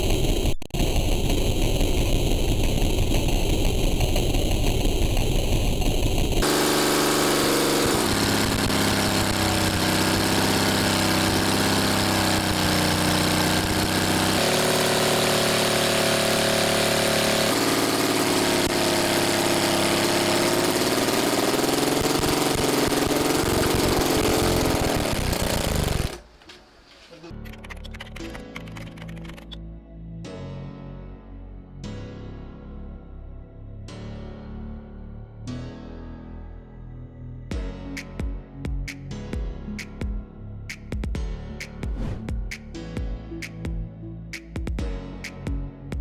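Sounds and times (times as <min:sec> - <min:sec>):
gasoline engine running: 0:02.7 - 0:27.2.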